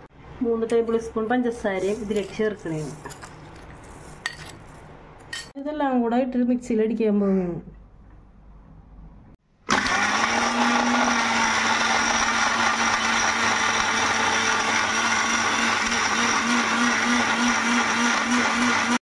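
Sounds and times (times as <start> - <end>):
mixer grinder whirring: 9.7 - 19.0.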